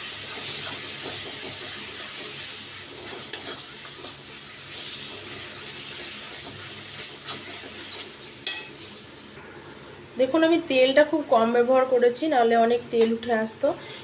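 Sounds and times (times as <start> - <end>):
paste sizzling in oil: 0.0 - 9.4
spatula scraping a pan: 0.3 - 5.0, 6.0 - 9.0.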